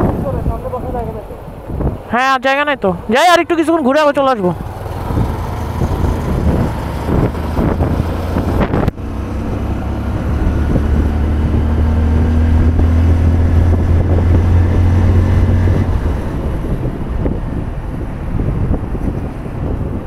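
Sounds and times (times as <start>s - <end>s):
wind on microphone: 0.0s - 2.4s, 4.5s - 20.0s
motorcycle engine running: 4.4s - 19.7s.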